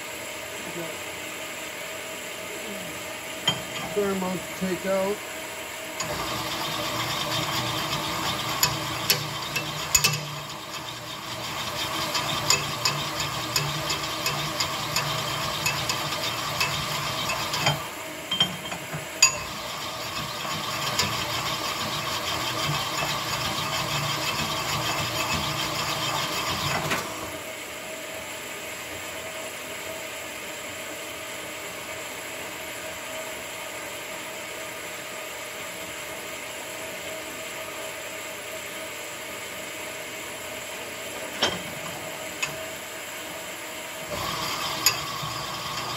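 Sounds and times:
steady low hum: 0:00.0 - 0:11.2
honing machine grinding: 0:06.0 - 0:17.9.

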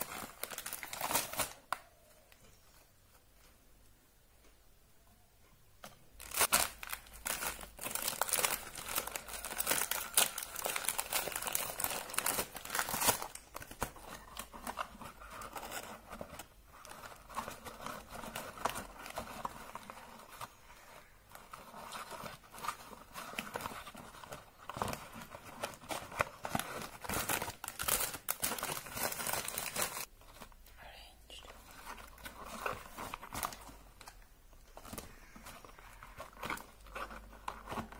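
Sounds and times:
foil and cardboard crinkling: 0:00.0 - 0:01.6, 0:06.2 - 0:30.5.

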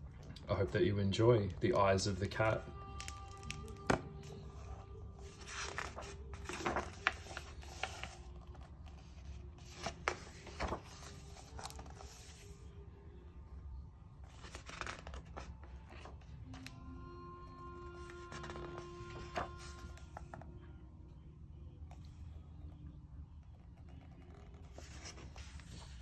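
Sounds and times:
paper pages rustling: 0:02.9 - 0:12.6, 0:14.2 - 0:16.8, 0:18.0 - 0:20.4, 0:23.9 - 0:26.0.

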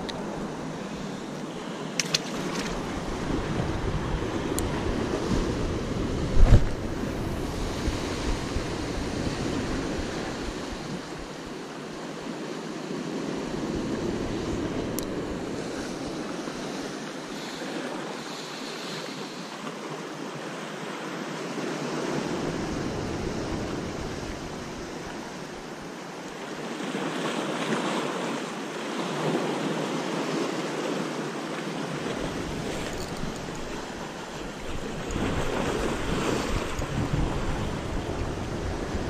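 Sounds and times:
wind rumbling on microphone: 0:02.2 - 0:11.4, 0:32.0 - 0:39.0.

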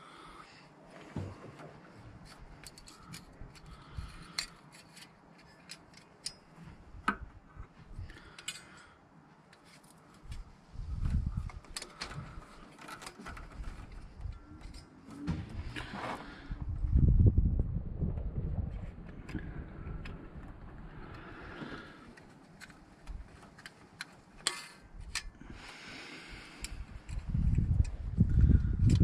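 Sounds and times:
light clicks and metallic scrapes: 0:01.0 - 0:07.1, 0:08.0 - 0:16.4, 0:21.0 - 0:25.4
low rumble: 0:14.0 - 0:21.8.

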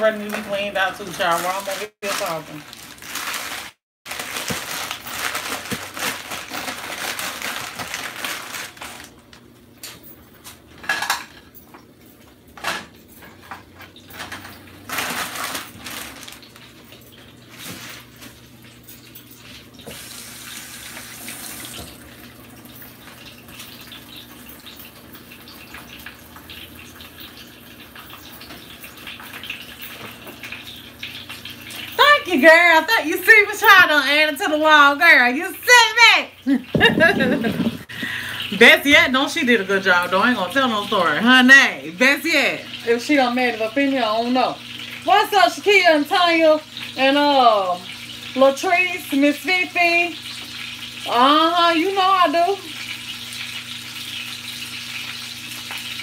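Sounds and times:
cookware knocking and clattering: 0:36.8 - 0:37.9.

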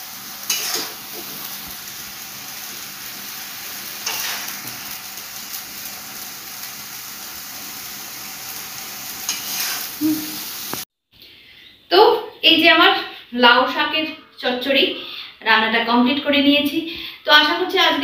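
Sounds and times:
curry sizzling in a pan: 0:00.0 - 0:10.9
steel spatula scraping: 0:00.4 - 0:01.5, 0:04.0 - 0:04.9, 0:09.1 - 0:10.8.

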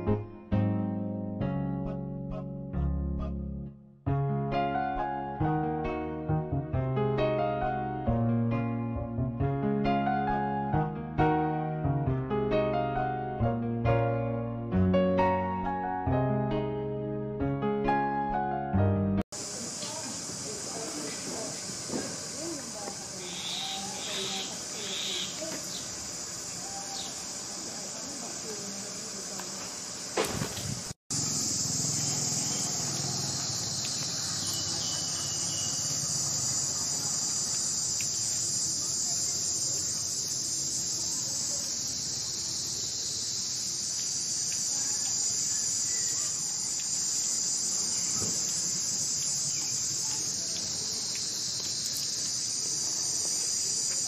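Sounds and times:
insects chorus: 0:19.3 - 0:54.0.

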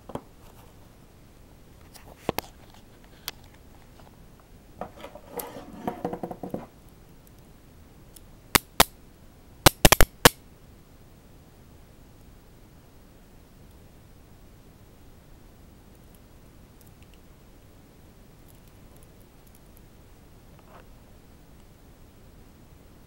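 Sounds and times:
sharp metal clicks: 0:09.7 - 0:10.4.

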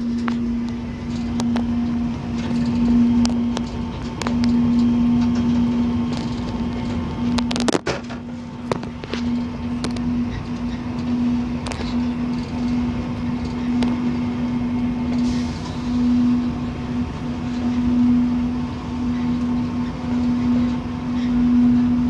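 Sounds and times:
sharp clicks and rattles: 0:00.0 - 0:15.2
diesel locomotive droning hum: 0:00.0 - 0:22.0
train rumbling on track: 0:00.0 - 0:22.0.

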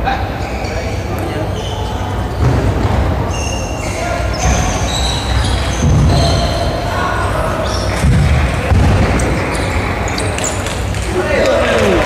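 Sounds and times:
shoes squeaking on wooden floor: 0:03.3 - 0:06.8, 0:09.0 - 0:10.7.

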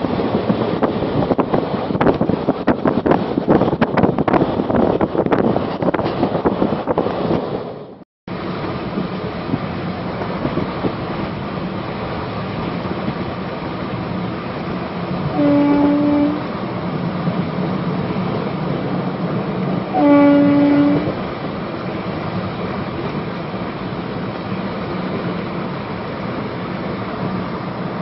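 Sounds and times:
train coaches rumbling and rattling: 0:00.0 - 0:28.0
train horn: 0:15.3 - 0:16.6, 0:19.8 - 0:21.2.

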